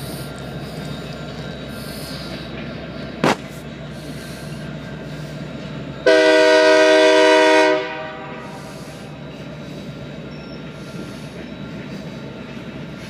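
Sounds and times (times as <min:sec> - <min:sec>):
diesel engines running: 0:00.0 - 0:13.0
locomotive air horn blast: 0:06.0 - 0:08.8.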